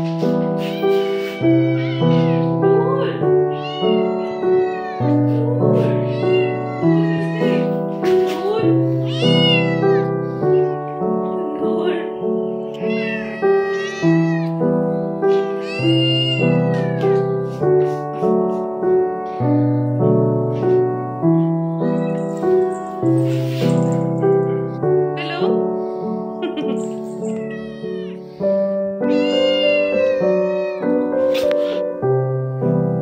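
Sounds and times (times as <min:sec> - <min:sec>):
piano music with steady beat: 0:00.0 - 0:33.0
kitten meowing: 0:00.6 - 0:05.2, 0:05.8 - 0:07.8, 0:08.4 - 0:10.6, 0:12.5 - 0:14.6, 0:15.3 - 0:17.3, 0:27.2 - 0:28.4, 0:29.0 - 0:31.7.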